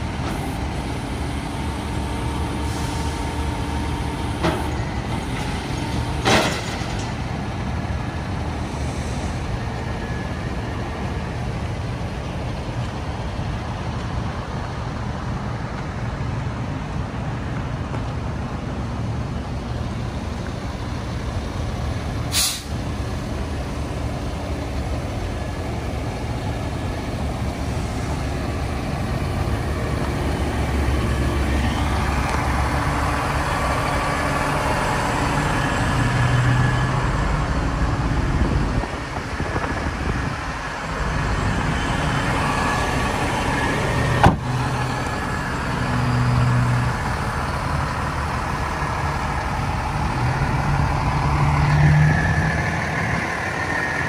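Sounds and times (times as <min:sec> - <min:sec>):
diesel truck engine idling: 0:16.8 - 0:51.7
air hissing: 0:22.3 - 0:22.8.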